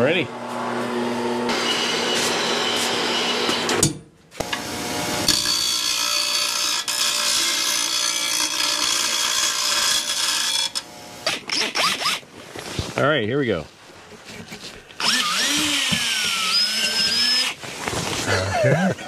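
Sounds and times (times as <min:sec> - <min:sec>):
angle grinder cutting metal: 0:04.4 - 0:12.2, 0:15.0 - 0:17.6.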